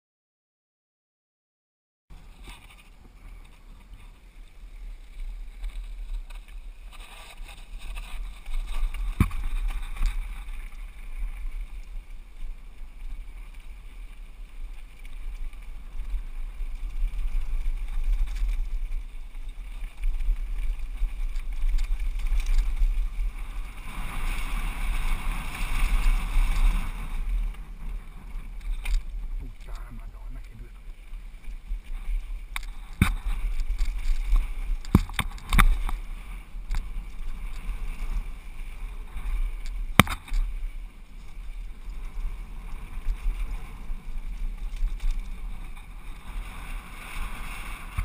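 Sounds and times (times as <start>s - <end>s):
tyres on gravel: 12.8s - 38.2s.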